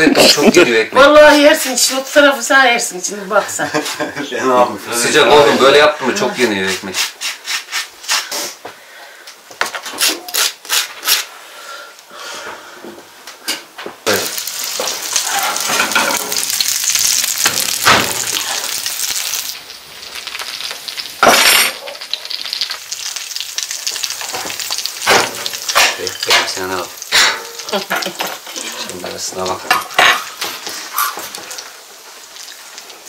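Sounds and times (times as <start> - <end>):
meat sizzling in a hot pan: 14.0 - 33.0
pan clunk: 17.4 - 18.3, 24.3 - 28.4.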